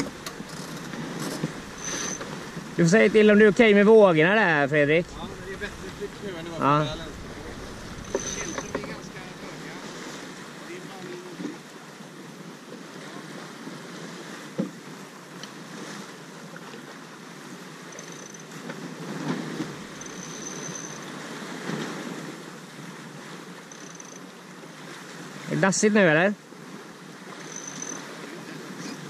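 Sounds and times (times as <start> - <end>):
wind on microphone: 0.0 - 10.6
water rushing past a hull: 0.0 - 29.0.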